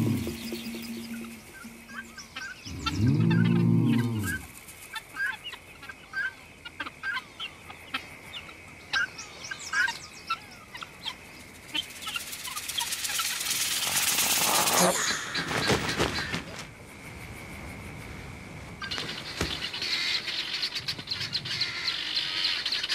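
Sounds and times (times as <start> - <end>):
low music: 0.0 - 3.4
guineafowl clucking alarm calls: 0.0 - 16.6, 18.8 - 22.9
faint high hum: 0.0 - 22.9.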